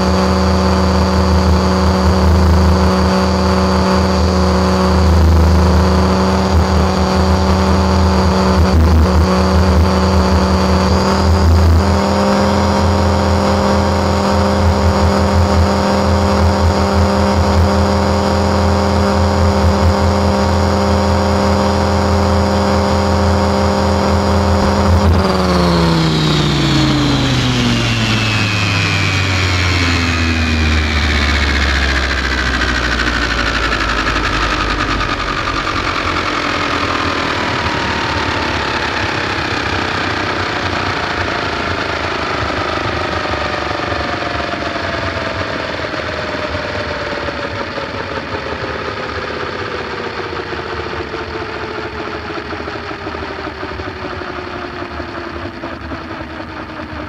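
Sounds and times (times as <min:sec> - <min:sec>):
helicopter rotor whine spinning down: 0:00.0 - 0:57.0
low rumble: 0:23.9 - 0:38.8.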